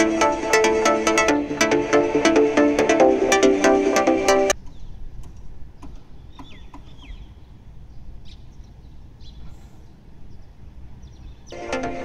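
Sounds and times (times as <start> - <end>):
small birds chirping: 4.5 - 11.7.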